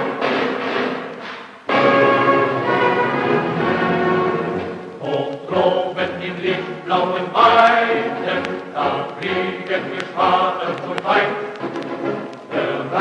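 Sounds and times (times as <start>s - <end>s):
orchestral accompaniment: 0.0s - 13.0s
choir singing a march: 1.7s - 13.0s.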